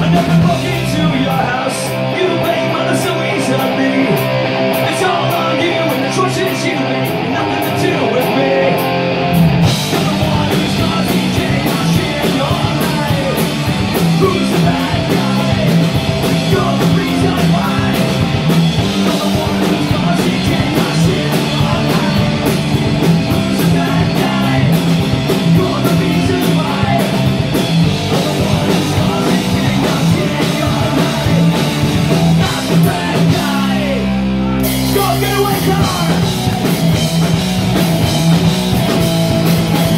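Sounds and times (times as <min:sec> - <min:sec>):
drums and bass: 0:00.0 - 0:39.9
electric guitar: 0:00.0 - 0:39.9
singers shouting into microphones: 0:32.3 - 0:37.0.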